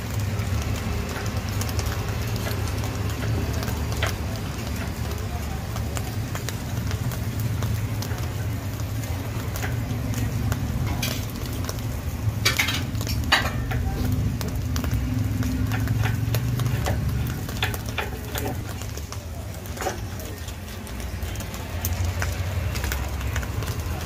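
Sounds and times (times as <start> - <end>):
rice frying in a wok: 0.0 - 24.0.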